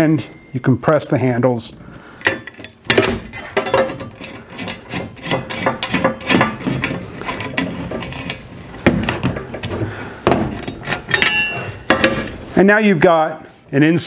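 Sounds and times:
rivet tool metal clicks and scraping: 2.2 - 8.4, 10.6 - 11.8.

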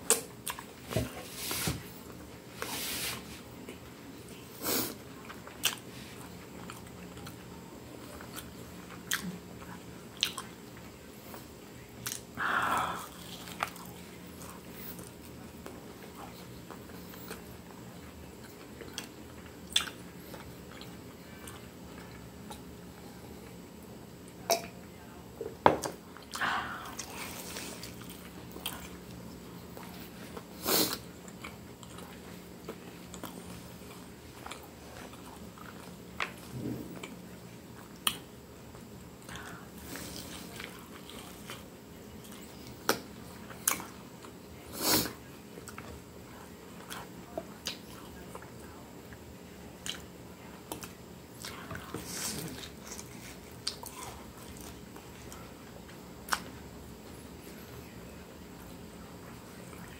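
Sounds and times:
wet chewing smacks and clicks: 18.4 - 21.0.

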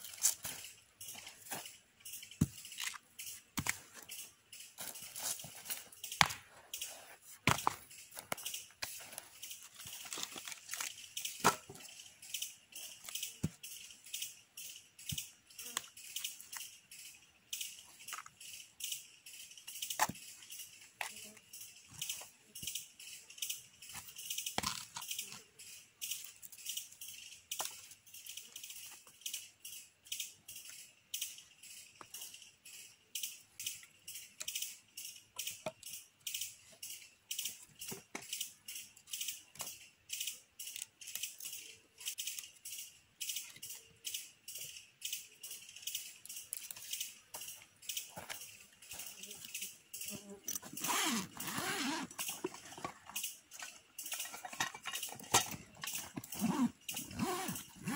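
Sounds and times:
rocks clacking together: 2.4 - 11.9.

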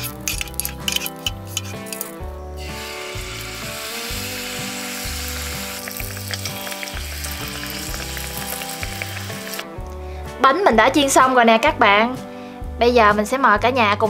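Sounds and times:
soft background music: 0.0 - 14.0
fritters sizzling in hot oil: 0.1 - 9.7.

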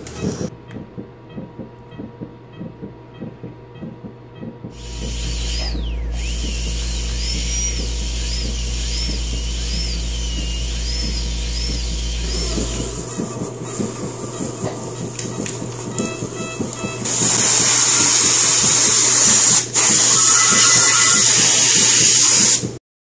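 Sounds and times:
dental drill whining: 4.7 - 22.7.

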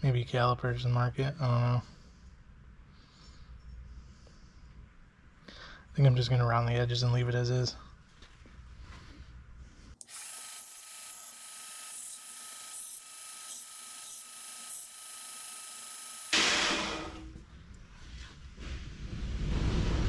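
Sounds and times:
belt grinder grinding steel: 10.0 - 17.2.

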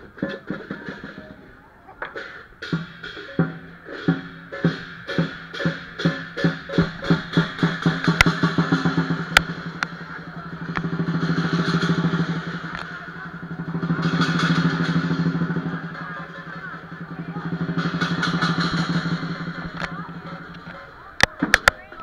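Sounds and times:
drum roll: 0.0 - 22.0
cymbals crashing: 2.2 - 21.2
sharp cracks: 6.0 - 15.5.

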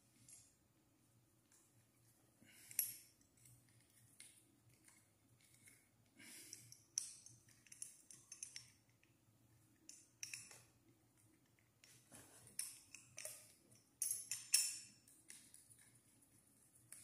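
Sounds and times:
light metallic clinks and clicks: 2.5 - 9.2, 9.8 - 10.8, 11.8 - 16.0.

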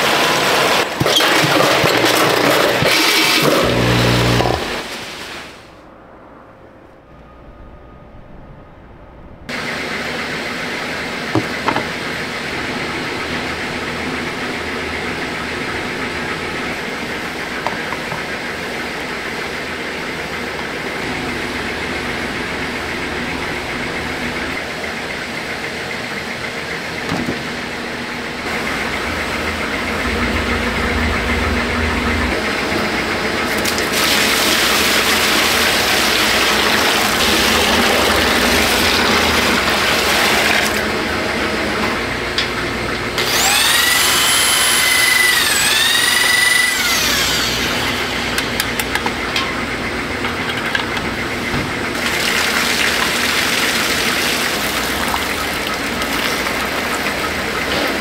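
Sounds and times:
factory machinery noise: 0.0 - 58.0
water pouring into metal tub: 33.5 - 41.0, 52.0 - 57.7.

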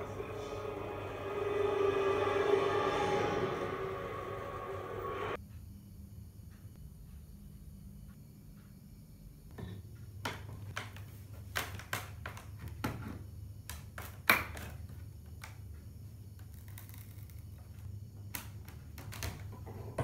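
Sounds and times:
low hum: 0.0 - 5.4.

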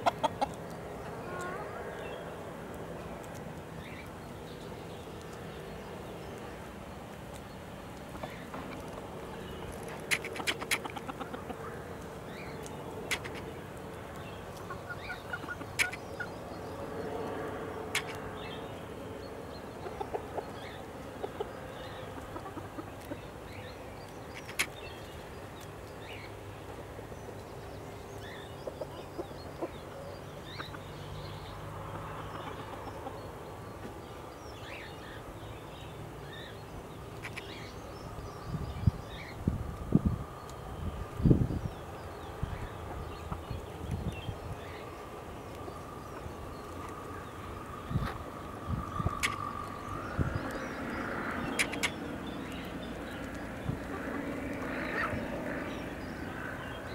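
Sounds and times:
chickens clucking: 0.0 - 1.7, 8.1 - 13.6, 14.5 - 16.3, 19.7 - 23.3, 28.5 - 29.8
sharp clicks: 15.8 - 16.0, 17.9 - 18.2, 49.1 - 49.4, 51.4 - 53.5.

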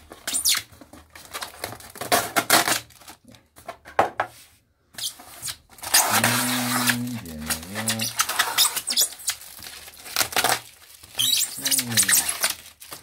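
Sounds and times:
tape tearing with low squeal: 0.2 - 0.7, 5.0 - 9.6, 10.2 - 13.0
cutter scraping packing tape: 5.0 - 9.4, 10.2 - 12.6.

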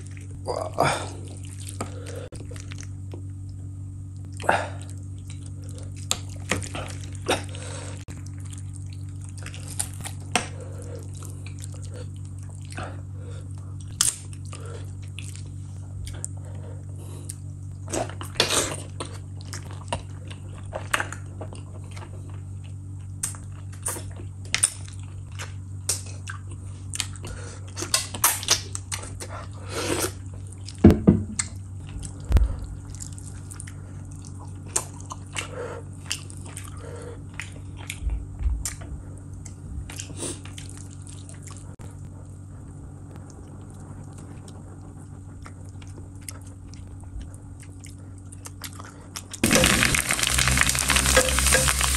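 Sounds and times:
steady low hum: 0.0 - 51.9
lip smacks and chewing: 31.4 - 41.8, 43.2 - 49.4.

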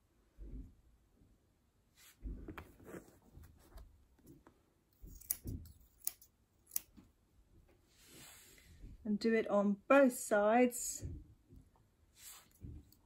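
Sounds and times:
scissors snipping hair: 5.0 - 7.0.

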